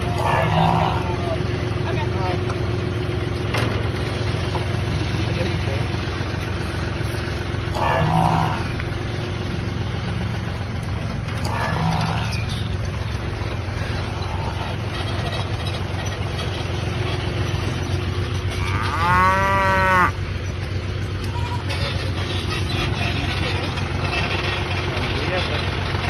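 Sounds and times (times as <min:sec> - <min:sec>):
vehicle engine idling: 0:00.0 - 0:26.0
cow mooing: 0:00.1 - 0:01.3, 0:07.7 - 0:08.8, 0:11.4 - 0:12.5, 0:18.5 - 0:20.2.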